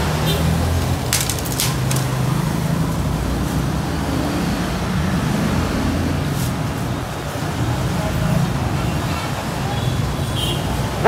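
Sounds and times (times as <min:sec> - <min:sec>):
road traffic: 0:00.0 - 0:11.0
plastic packaging crackling: 0:01.1 - 0:02.3.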